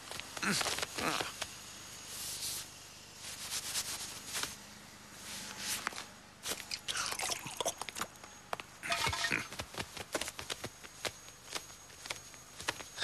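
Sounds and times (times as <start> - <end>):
cartoon drinking noise: 6.7 - 7.9.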